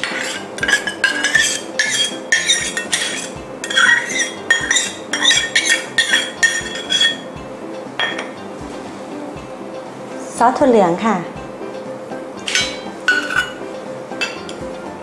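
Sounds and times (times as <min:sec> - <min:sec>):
metal spoon scraping steel bowl: 0:00.0 - 0:07.3.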